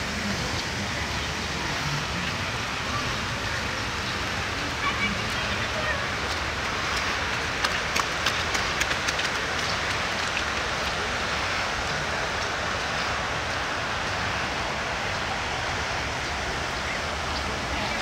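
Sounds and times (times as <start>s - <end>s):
steady rain hiss: 0.0s - 18.0s
sharp taps of raindrops: 5.2s - 14.2s.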